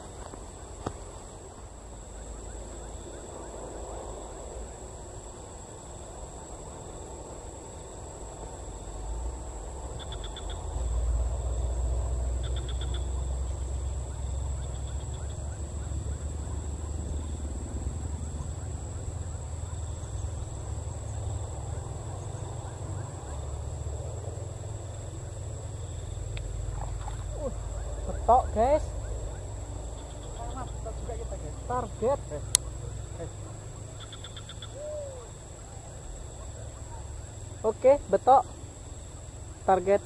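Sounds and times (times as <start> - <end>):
high-pitched insect drone: 0.0 - 40.0
short trilling calls: 10.0 - 10.7, 12.4 - 17.4, 26.7 - 38.2.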